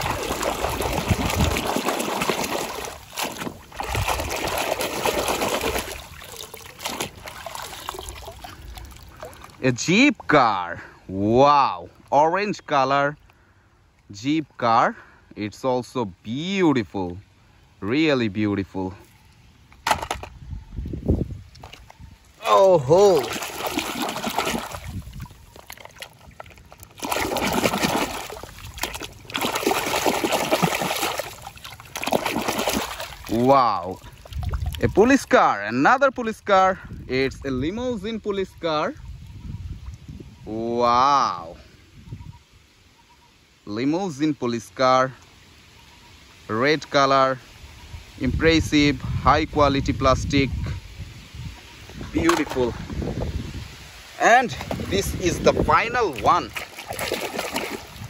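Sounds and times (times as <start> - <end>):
water splashing and sloshing: 0.0 - 10.4, 19.0 - 37.4, 50.6 - 58.0.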